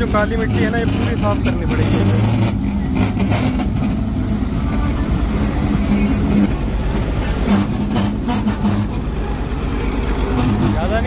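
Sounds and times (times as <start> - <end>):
diesel engine under load: 0.0 - 11.0.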